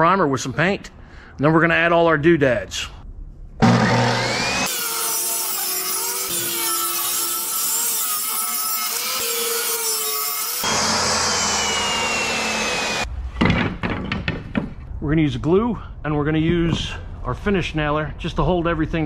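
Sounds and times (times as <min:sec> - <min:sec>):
table saw cutting board: 0:03.6 - 0:13.1.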